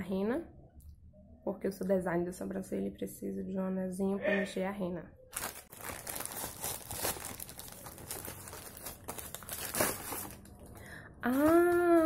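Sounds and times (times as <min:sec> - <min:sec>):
plastic package crinkling: 0:05.3 - 0:12.0
plastic ripping: 0:05.3 - 0:12.0.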